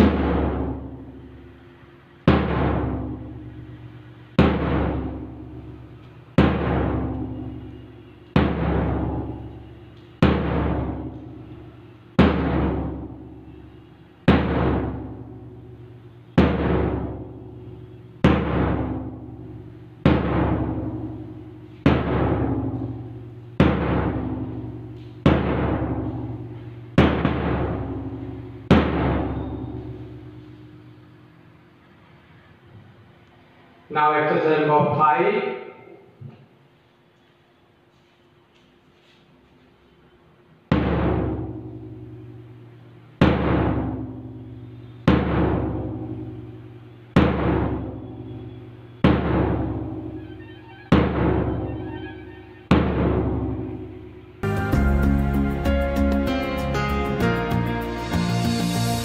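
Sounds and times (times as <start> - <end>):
large drum beats: 0.0 - 1.2, 2.3 - 11.5, 12.2 - 13.6, 14.3 - 30.9, 47.2 - 48.0, 50.9 - 59.0.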